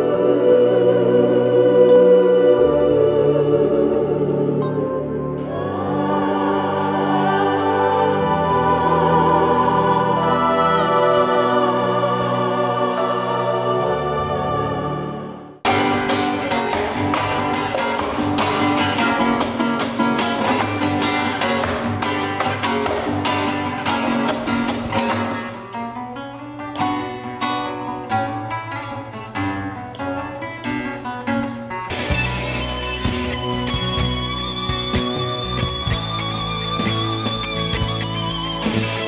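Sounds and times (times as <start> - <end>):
live band with electric guitar: 15.6 - 26.1, 31.3 - 39.0
classical guitar strumming: 15.6 - 39.0.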